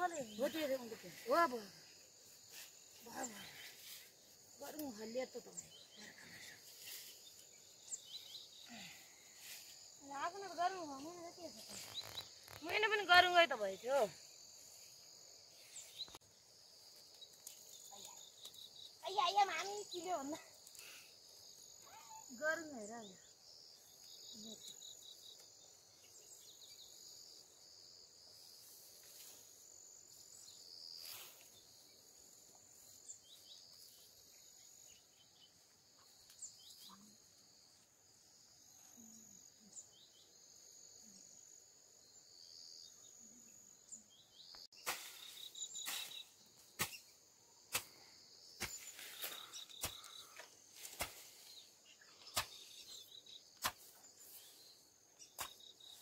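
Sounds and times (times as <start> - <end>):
insects droning: 0.0 - 56.0
pine needles scraped and rustling: 11.6 - 12.7.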